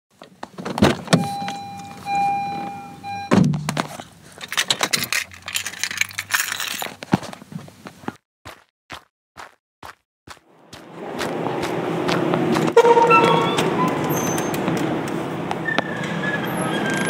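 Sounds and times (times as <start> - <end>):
steady electronic beep: 1.2 - 3.4, 12.8 - 14.5
metallic jingling and rattling: 4.0 - 7.1
sharp clicks and knocks: 11.6 - 16.2.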